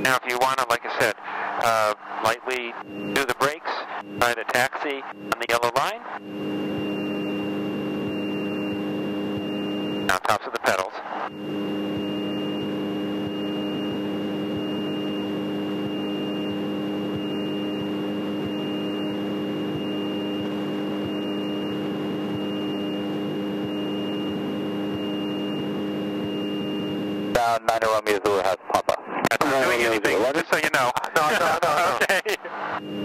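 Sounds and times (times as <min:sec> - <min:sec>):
airplane engine droning: 0:00.0 - 0:33.0
high-pitched whine: 0:00.0 - 0:33.0.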